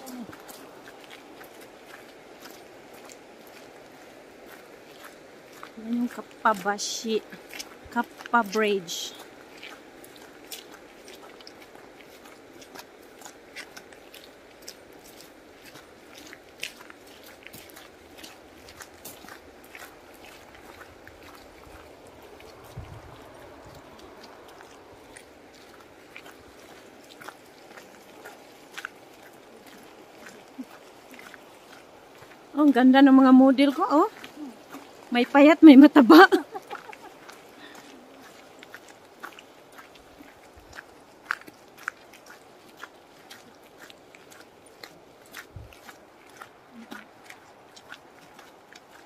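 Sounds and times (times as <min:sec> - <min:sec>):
footsteps on gravel: 0:00.0 - 0:49.0.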